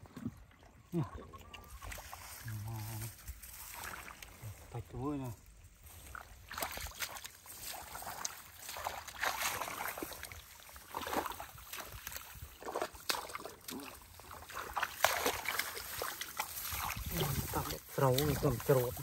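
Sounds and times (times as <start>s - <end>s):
boots squelching through mud: 5.7s - 19.0s.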